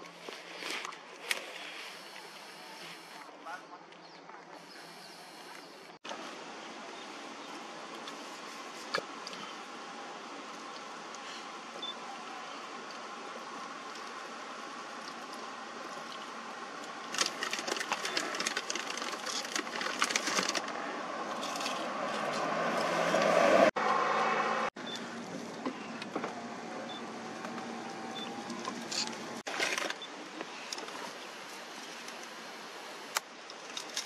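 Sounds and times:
tyre noise on road: 0:13.1 - 0:34.0
crackling handling noise: 0:14.9 - 0:22.5, 0:28.4 - 0:32.4
vehicle engine: 0:16.8 - 0:29.9.

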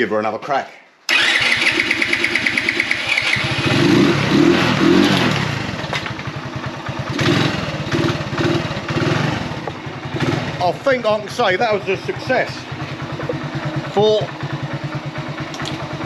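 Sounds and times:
electric starter cranking: 0:01.1 - 0:06.2
motorbike engine running: 0:01.1 - 0:16.0.

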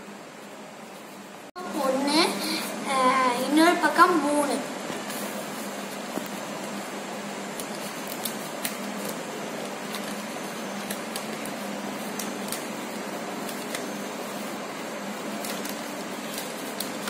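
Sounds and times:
steady background hum: 0:00.0 - 0:17.0
newspaper crinkling: 0:07.4 - 0:17.0.

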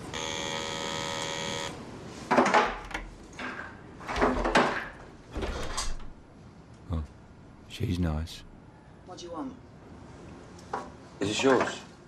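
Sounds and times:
electric doorbell buzzing: 0:00.0 - 0:01.8
door clunks and knocks: 0:04.1 - 0:06.2.

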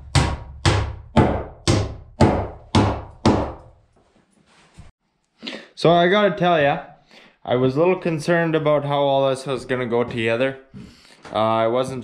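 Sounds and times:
hammer knocking nails into wood: 0:00.0 - 0:03.7.

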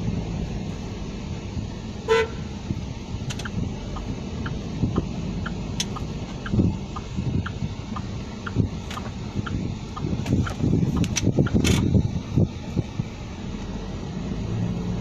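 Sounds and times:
car engine and tyres rumbling: 0:00.0 - 0:15.0
car horn toot: 0:02.0 - 0:02.5.

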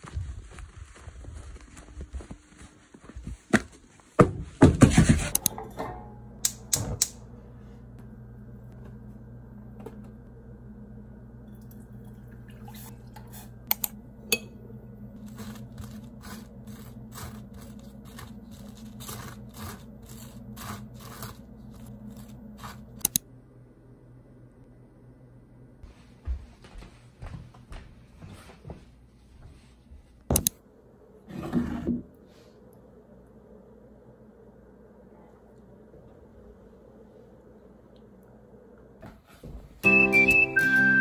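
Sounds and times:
steady low hum: 0:00.0 - 0:39.8
knife scraping butter on toast: 0:15.2 - 0:22.9.

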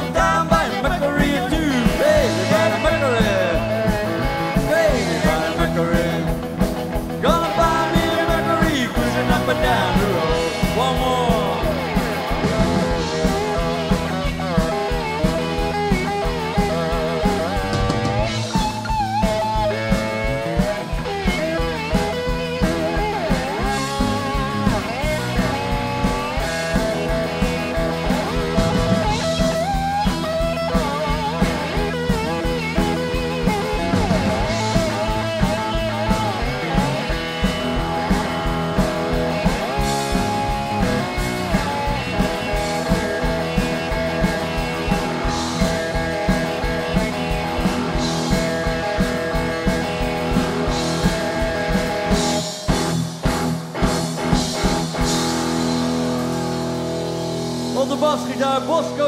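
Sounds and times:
lead electric guitar bending notes: 0:00.0 - 0:59.0
rhythm guitar: 0:00.0 - 0:59.0
steady drum beat: 0:00.0 - 0:59.0.

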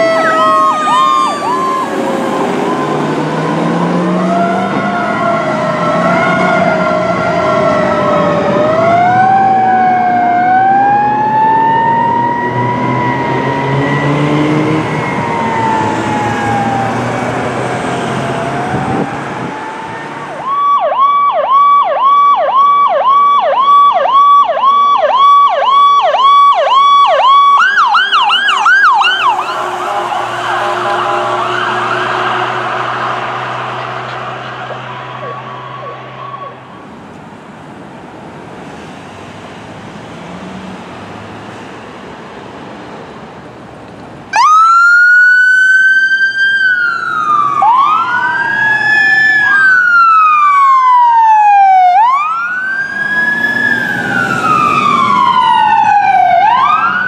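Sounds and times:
siren yelping: 0:00.0 - 0:37.0, 0:44.3 - 0:57.0
fire engine siren wailing: 0:00.0 - 0:42.5, 0:44.2 - 0:57.0.

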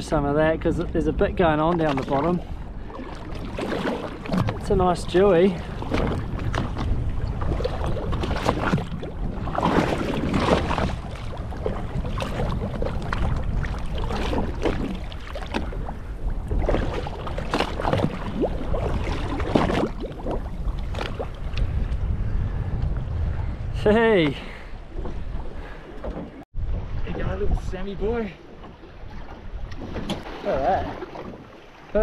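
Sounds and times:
water splashing against boat hull: 0:00.0 - 0:22.0, 0:24.1 - 0:32.0
steady low rumble: 0:20.0 - 0:25.6.

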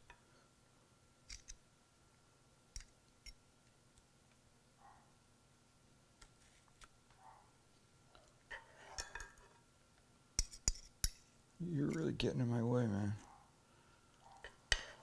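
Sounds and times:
faint steady hum: 0:00.0 - 0:15.0
metal spoons clicking and tapping: 0:09.0 - 0:09.4, 0:10.4 - 0:11.2.

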